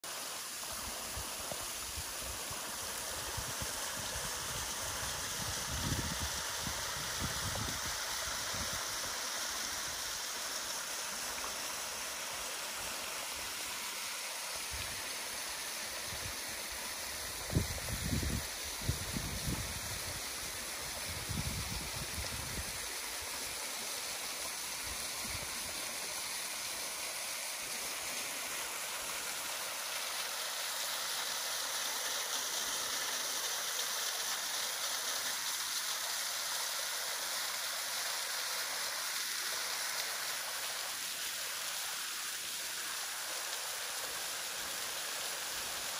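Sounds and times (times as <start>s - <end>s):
water falling into a pool: 0.0s - 45.9s.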